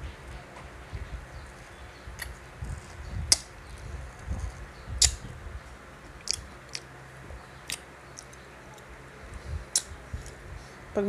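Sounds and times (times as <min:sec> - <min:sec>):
biting and chewing mango: 0:01.6 - 0:05.3, 0:06.1 - 0:08.9.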